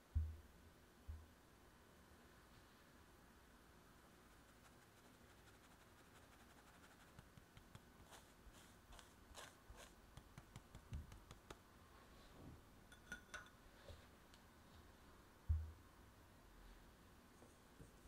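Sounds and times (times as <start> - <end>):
faint metallic clink: 12.9 - 13.6.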